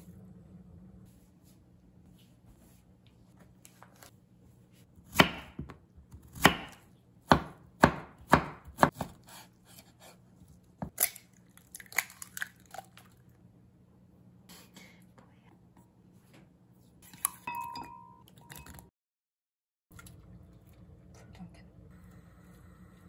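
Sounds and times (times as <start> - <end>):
knife chopping on wooden board: 5.1 - 10.2.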